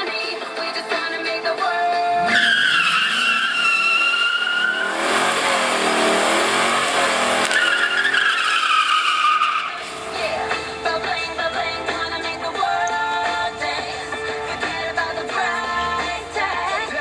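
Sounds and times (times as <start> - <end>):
music: 0.0 - 3.6, 9.8 - 17.0
tyres squealing: 2.1 - 10.6
car engine revving: 2.1 - 17.0.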